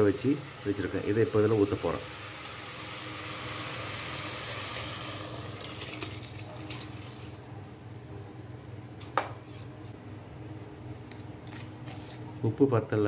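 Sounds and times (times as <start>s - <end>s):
rice and water pouring into a pot: 2.0s - 7.4s.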